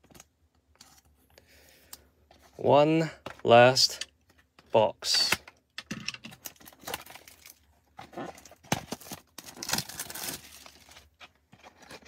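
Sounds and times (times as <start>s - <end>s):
plastic shrink wrap crinkling and tearing: 6.4s - 12.0s.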